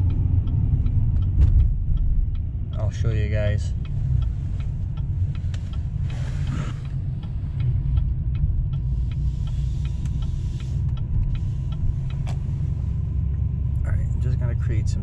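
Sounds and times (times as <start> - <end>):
engine and road rumble: 0.0 - 15.0
turn signal ticking: 0.0 - 15.0.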